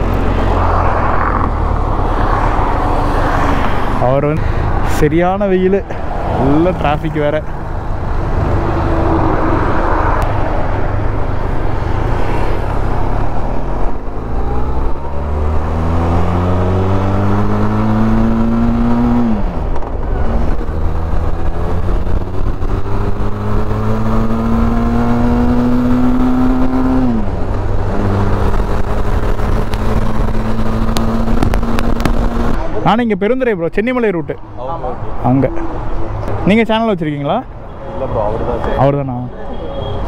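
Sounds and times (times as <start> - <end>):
motorcycle engine accelerating: 14.2 - 32.7.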